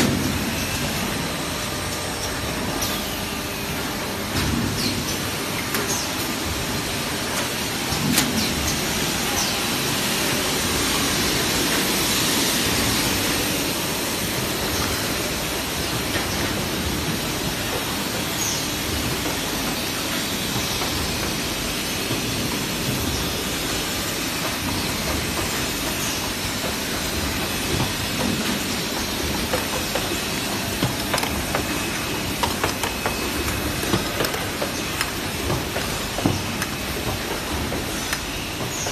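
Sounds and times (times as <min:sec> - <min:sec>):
machinery hum and hiss: 0:00.0 - 0:38.9
sharp mechanical clicks and knocks: 0:24.4 - 0:38.9.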